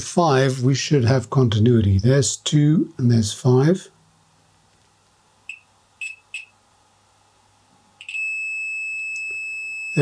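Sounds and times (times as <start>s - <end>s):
multimeter beeping: 5.5s - 6.6s, 8.0s - 10.0s.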